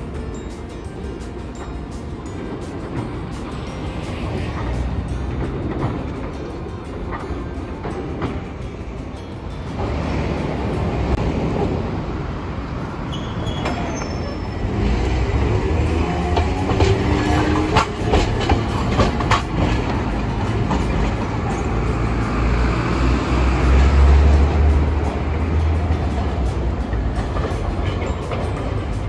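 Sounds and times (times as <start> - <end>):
streetcar wheels rumbling on rails: 0.0 - 29.0
wheels clacking over rail joints: 0.0 - 29.0
faint wheel squeal: 13.1 - 15.1.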